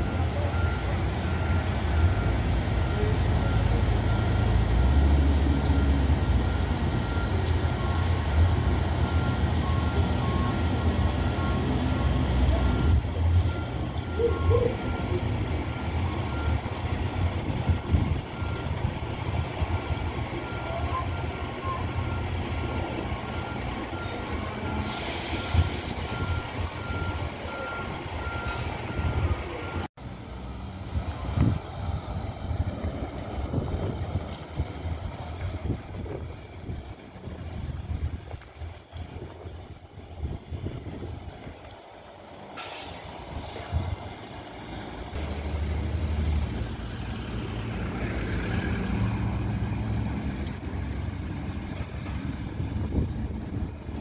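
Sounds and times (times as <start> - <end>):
truck reversing alarm beeping: 0.0 - 29.9
truck diesel engines running: 0.0 - 54.0
air brake hiss: 24.1 - 26.8, 28.4 - 29.0.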